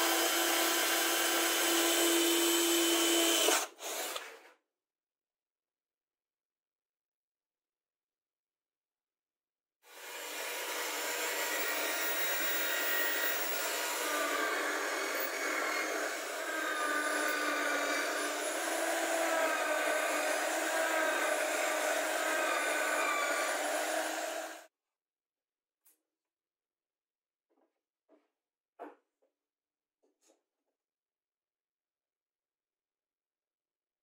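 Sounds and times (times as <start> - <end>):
drill bit cutting plywood: 0.0 - 4.4, 9.9 - 24.7.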